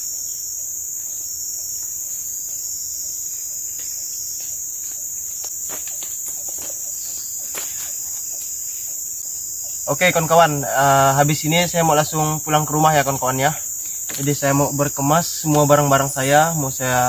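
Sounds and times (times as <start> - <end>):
insects droning: 0.0 - 17.0
faint rustles and knocks: 3.7 - 9.0.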